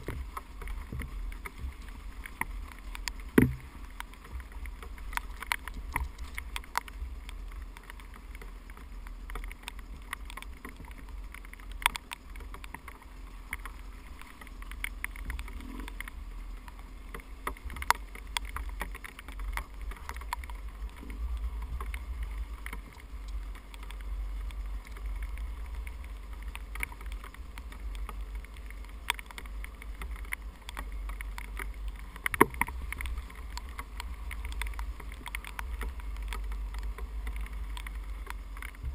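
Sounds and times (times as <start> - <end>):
bike knocking over rocks: 0.0 - 6.9
dirt bike engine rumble: 0.0 - 38.9.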